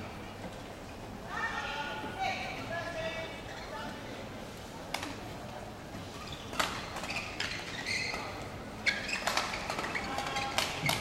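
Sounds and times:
shoes squeaking on court: 6.2s - 11.0s.

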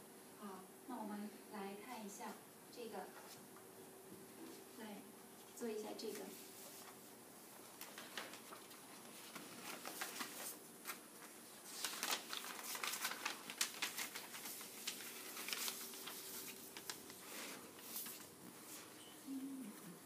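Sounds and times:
paper rustling and crinkling: 6.1s - 19.0s.

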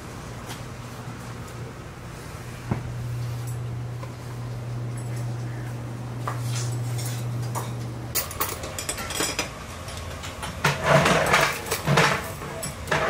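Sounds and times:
low hum: 0.9s - 9.0s
dishes and cutlery clinking: 6.4s - 13.0s.

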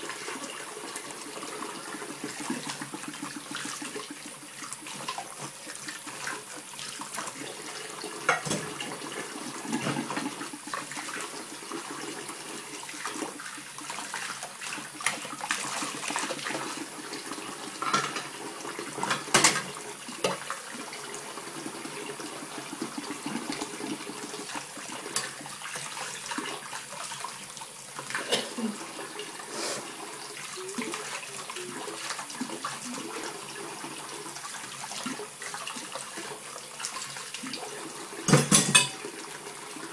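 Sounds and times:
dishes knocking and clinking: 8.2s - 8.8s, 17.8s - 18.3s, 19.0s - 20.4s, 38.3s - 39.0s
tap running into metal saucepan: 8.2s - 8.9s, 17.8s - 18.3s, 19.0s - 20.5s, 38.3s - 39.0s.

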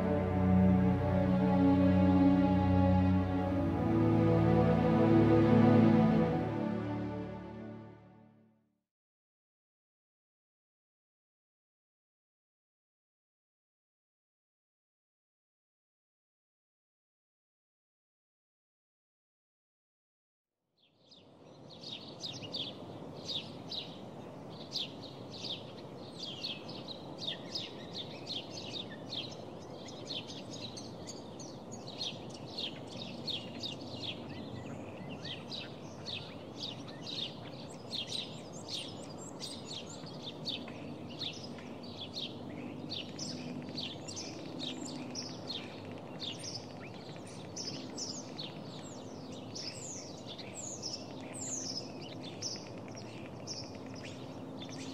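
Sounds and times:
small birds chirping: 20.8s - 54.9s.

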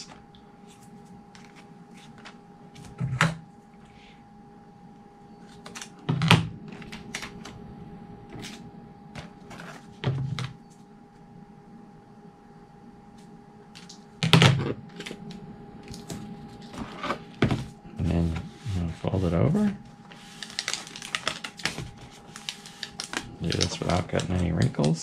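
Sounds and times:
plastic clicks and crackles: 20.4s - 21.8s, 22.4s - 25.0s.

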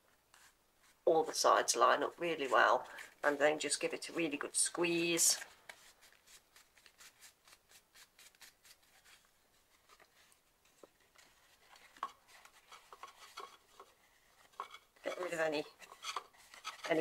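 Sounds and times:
paper rustling: 5.2s - 14.6s
hands handling paper book ticks: 5.3s - 9.2s.

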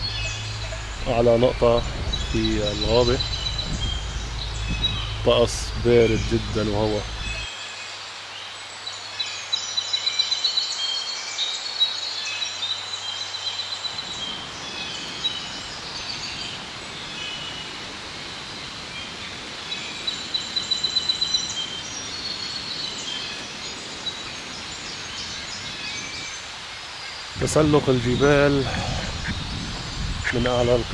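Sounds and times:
rushing wind: 0.0s - 7.5s, 13.7s - 30.9s
steady low hum: 0.0s - 7.5s, 27.4s - 30.9s
songbirds trilling and chirping: 0.0s - 30.9s.

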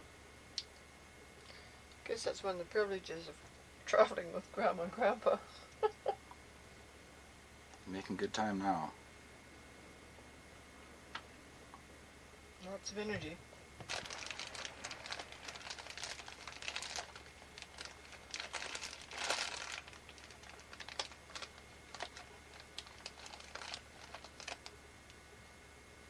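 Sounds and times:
close rustling and crackling: 12.9s - 25.2s.

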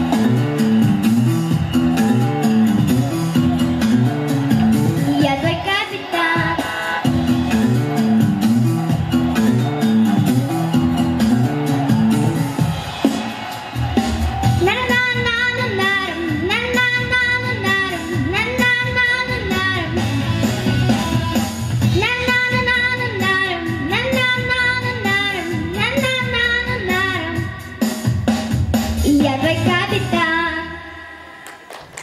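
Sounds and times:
instrumental accompaniment: 0.0s - 29.9s
girl singing into microphone: 14.6s - 20.0s, 21.9s - 27.6s, 29.1s - 31.0s.

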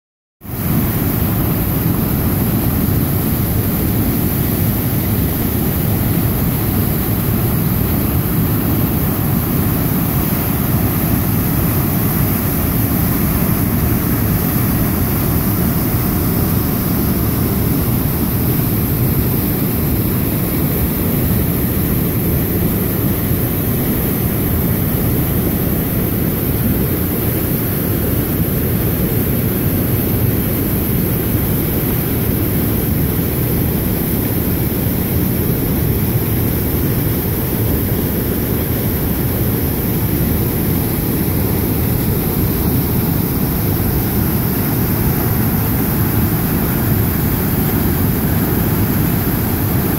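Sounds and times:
waterfall rushing: 42.0s - 49.9s.

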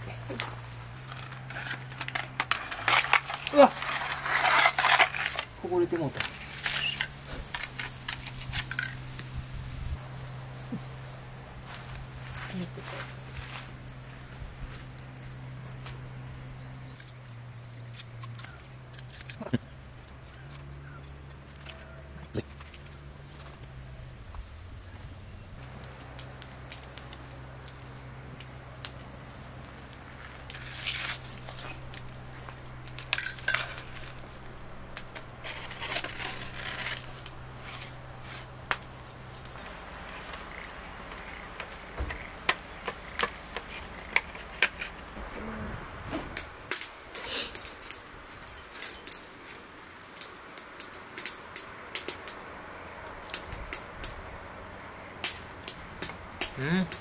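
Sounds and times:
knife cutting pizza in foil tray: 1.5s - 8.6s.

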